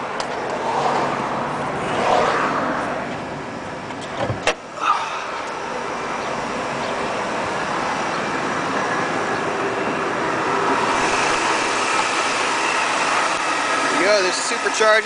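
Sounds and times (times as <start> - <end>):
car engine idling: 3.2 - 15.0.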